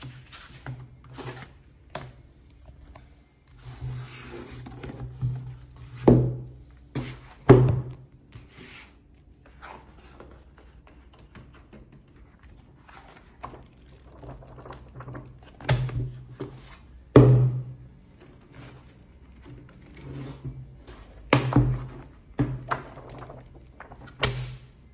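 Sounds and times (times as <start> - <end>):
booklet pages flipping: 8.2 - 16.9, 18.2 - 24.6.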